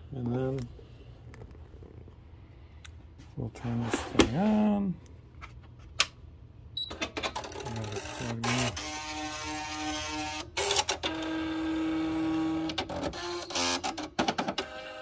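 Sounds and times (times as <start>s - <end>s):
typewriter carriage motor whine: 6.9s - 15.0s.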